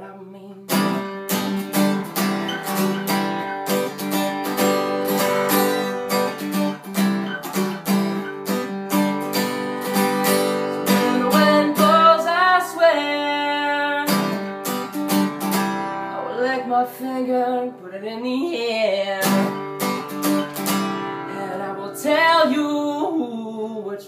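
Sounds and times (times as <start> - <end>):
acoustic guitar strumming: 0.0 - 23.6.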